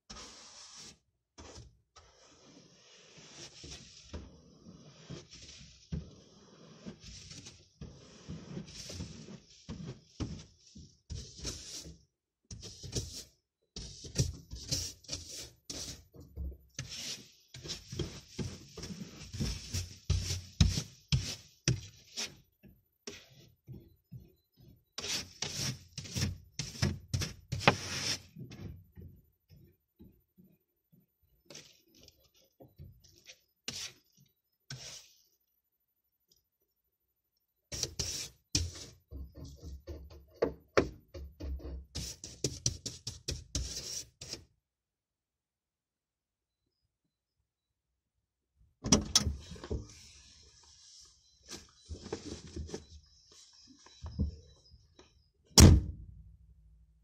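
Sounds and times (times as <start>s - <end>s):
scraping snow off glass: 0.1s - 13.2s, 16.8s - 22.4s, 25.0s - 28.3s, 37.7s - 39.0s.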